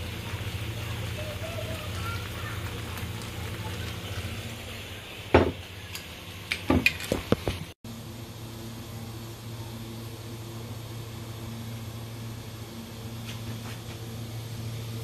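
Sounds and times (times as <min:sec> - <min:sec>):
meat sizzling in a frying pan: 0:00.0 - 0:05.9.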